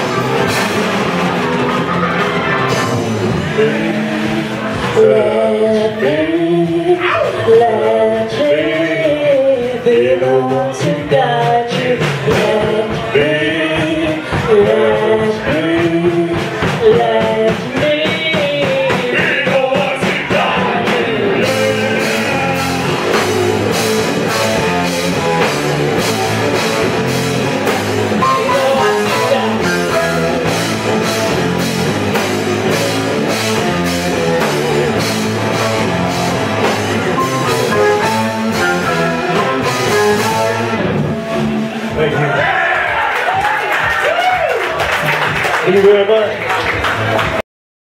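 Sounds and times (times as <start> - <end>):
metal band playing: 0.0 - 43.2
person singing: 2.7 - 26.7, 28.2 - 30.8, 35.5 - 40.8
drummer playing cymbals: 10.5 - 42.1.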